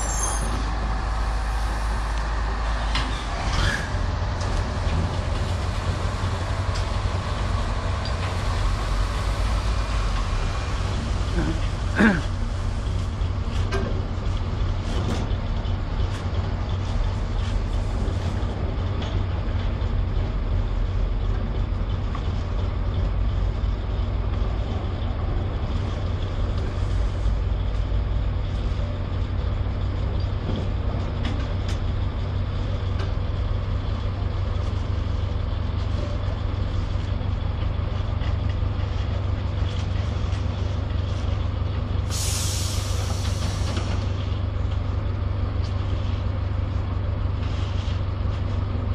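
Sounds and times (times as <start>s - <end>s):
engine running with low drone: 0.0s - 48.9s
short loud hiss: 42.1s - 43.8s.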